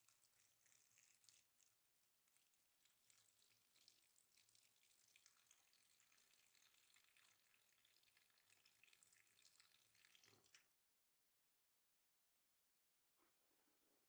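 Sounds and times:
tap water pouring into bowl: 0.0s - 10.7s
water drips: 0.0s - 10.7s.

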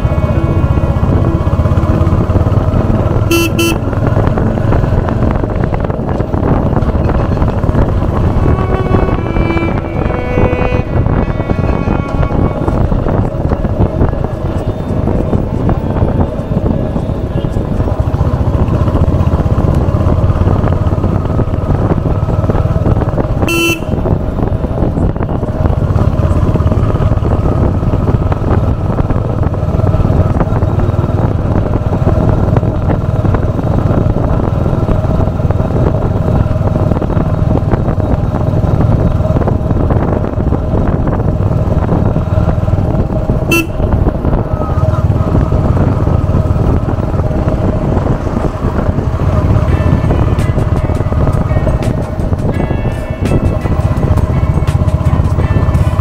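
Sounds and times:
motorcycle engine running: 0.0s - 56.0s
horn toots: 2.8s - 4.2s, 7.9s - 13.6s, 23.4s - 24.2s, 43.4s - 45.1s.

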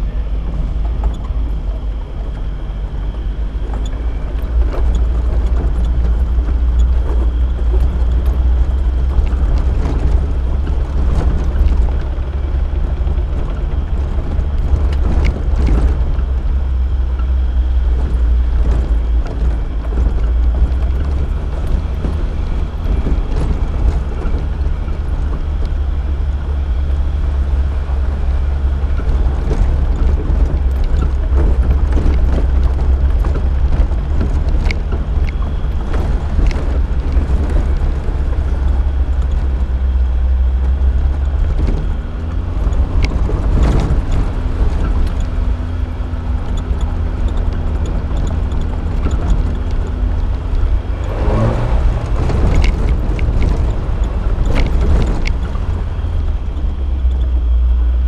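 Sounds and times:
knocks and rattles: 0.0s - 57.8s
low rumble: 0.0s - 58.0s
vehicle engine running: 0.0s - 58.0s.

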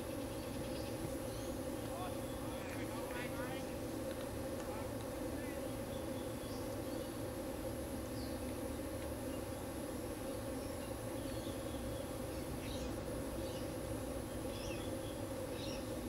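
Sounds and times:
constant low hum: 0.0s - 16.0s.

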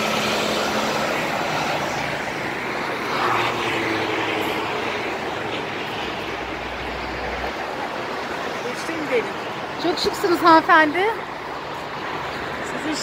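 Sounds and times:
vehicle engine passing close: 0.0s - 7.8s
road traffic passing: 0.0s - 13.0s.

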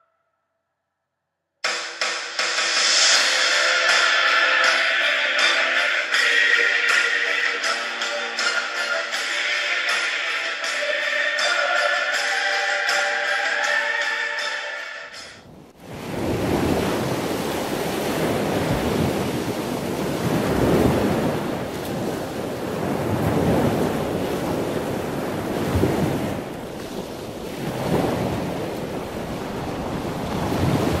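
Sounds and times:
music cue: 1.6s - 15.4s
steady rushing noise: 1.7s - 7.8s.

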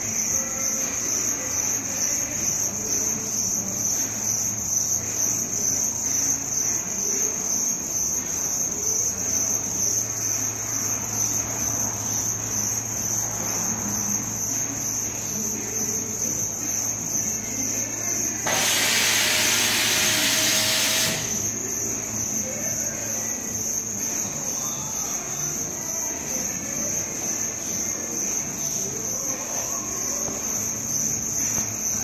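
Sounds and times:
high-pitched whine: 10.9s - 32.0s.

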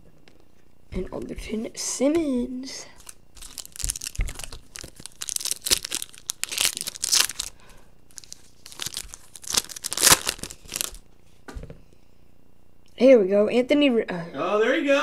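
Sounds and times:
foil wrapper tearing and crinkling: 3.0s - 11.0s.

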